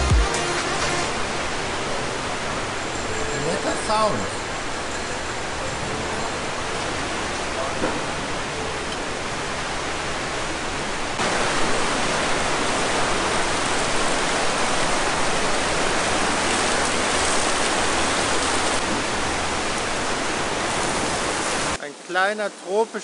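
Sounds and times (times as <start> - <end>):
heavy rain downpour: 0.0 - 23.0.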